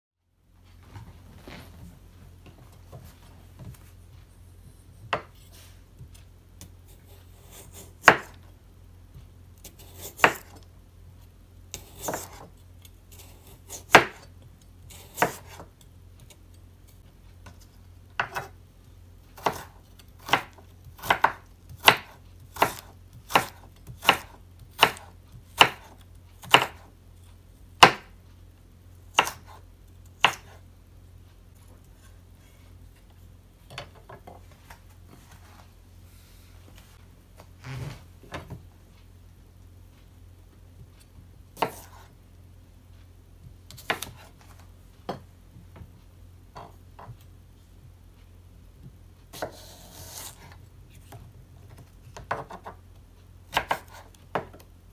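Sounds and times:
knife chopping carrot on wooden board: 5.0 - 8.4, 9.6 - 10.6, 11.7 - 12.5, 13.2 - 16.4, 18.2 - 18.6, 19.4 - 26.9, 27.8 - 28.2, 29.1 - 29.6, 30.2 - 30.6, 41.6 - 42.1, 43.7 - 44.3, 49.3 - 52.8, 53.5 - 54.6.

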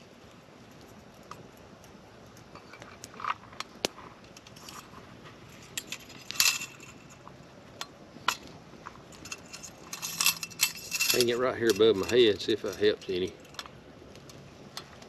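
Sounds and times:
faint campfire crackle: 0.0 - 15.0
metal clicks and clinks of lantern: 9.1 - 14.9.

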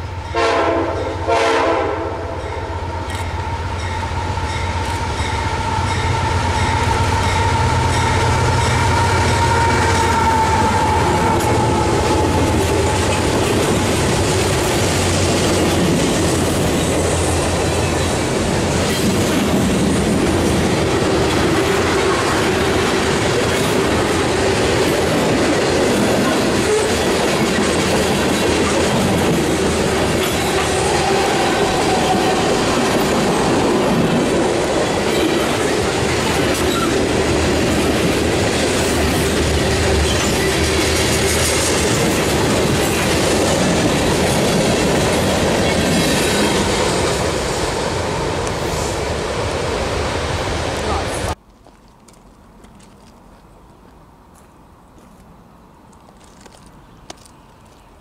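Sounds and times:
diesel locomotive passing: 0.0 - 51.4
train horn blasts: 0.3 - 12.4
train wheels clickety-clack: 6.2 - 47.5.

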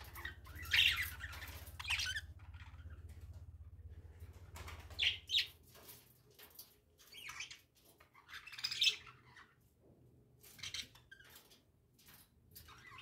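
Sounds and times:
budgerigars chirping: 0.0 - 3.0, 5.0 - 5.5.

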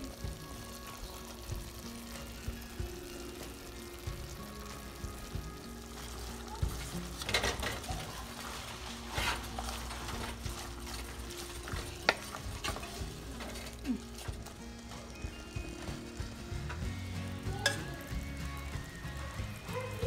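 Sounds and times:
wooden spoon scraping a clay pot: 6.7 - 13.8.

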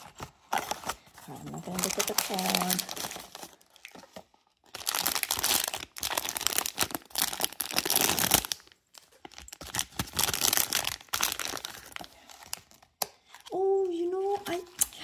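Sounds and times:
plastic pouch crinkling and tearing: 1.6 - 13.0.

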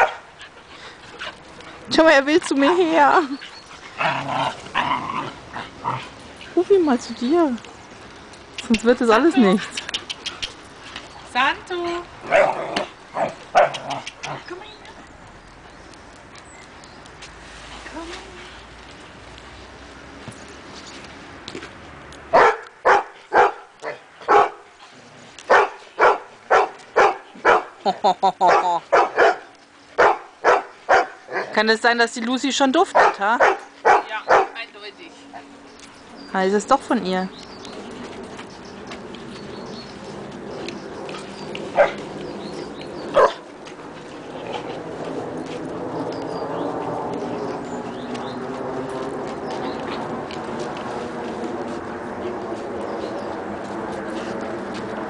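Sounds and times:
dog barking: 22.3 - 24.6, 25.5 - 27.7, 28.5 - 31.5, 33.0 - 34.6, 41.8 - 42.0, 43.2 - 43.4.

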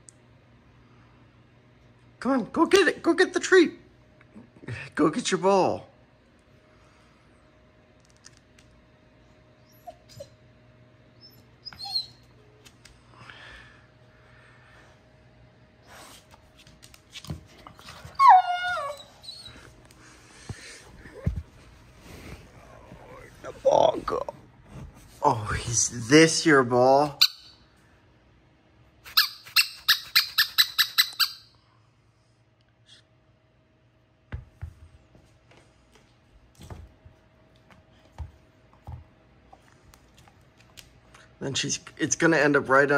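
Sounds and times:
dog whimpering: 9.6 - 10.4, 11.2 - 12.3, 17.8 - 19.7
rubber dog ball squeaking: 29.1 - 31.5.

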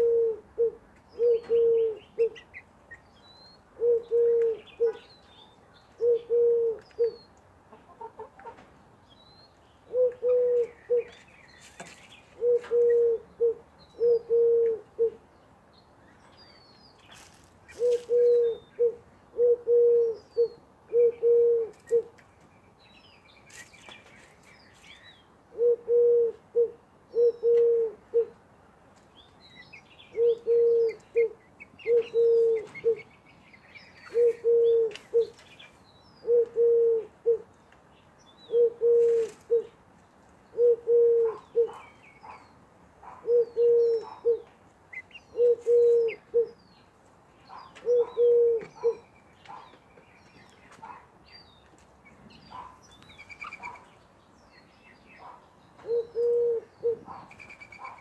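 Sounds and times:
dove cooing: 0.0 - 2.6, 3.8 - 5.1, 6.0 - 7.3, 9.9 - 11.2, 12.4 - 15.2, 17.7 - 22.1, 25.5 - 28.4, 30.1 - 33.1, 34.0 - 35.4, 36.2 - 37.5, 38.5 - 39.8, 40.5 - 42.4, 43.0 - 46.6, 47.5 - 49.0, 55.8 - 58.0
small birds chirping faintly: 0.0 - 58.0.

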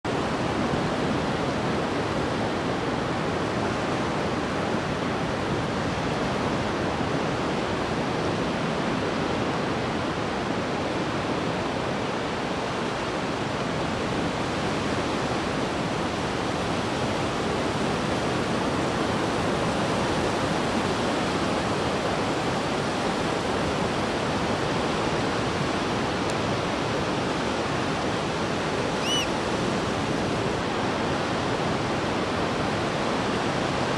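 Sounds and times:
ocean surf breaking on sand: 0.1 - 33.9
whistled bird call: 29.0 - 29.4.

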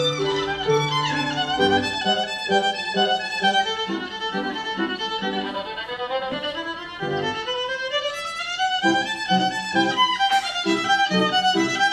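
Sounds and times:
piano chords: 0.0 - 5.5
violin melody: 0.0 - 11.9.

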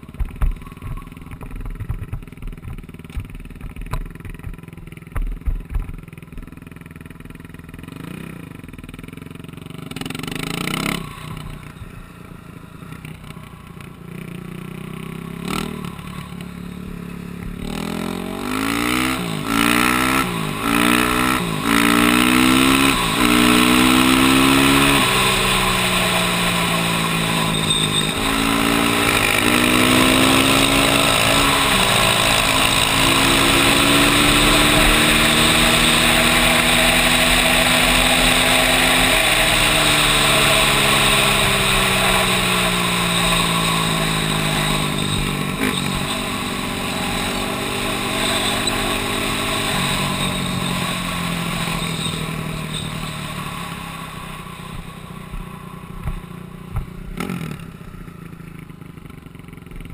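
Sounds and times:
atv engine revving: 0.0 - 59.9.

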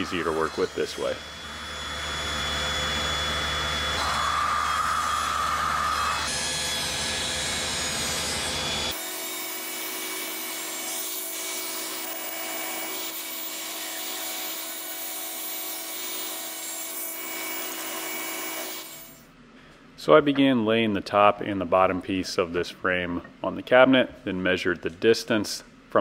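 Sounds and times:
saw cutting wood: 0.0 - 19.2
table saw running: 0.0 - 19.2.

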